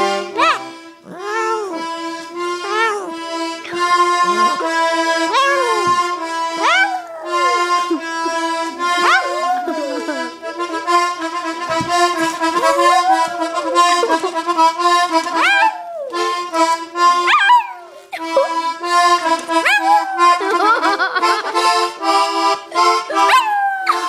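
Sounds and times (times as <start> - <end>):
accordion playing chords: 0.0 - 24.0
dog howling: 4.6 - 10.4, 12.2 - 14.5, 15.2 - 16.4, 17.2 - 18.6, 19.5 - 20.9, 23.0 - 24.0.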